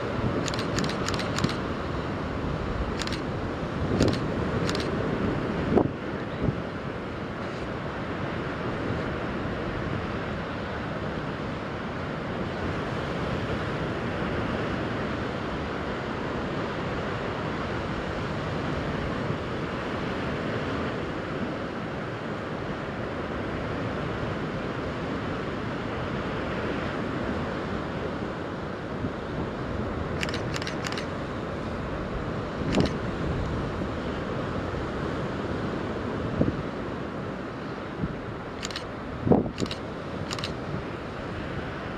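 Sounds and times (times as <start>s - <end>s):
short clicks: 0.4s - 1.6s, 3.0s - 3.3s, 4.0s - 4.9s, 30.2s - 31.1s, 32.7s - 33.0s, 38.6s - 38.9s, 39.5s - 40.6s
wind buffeting microphone: 37.8s - 41.9s.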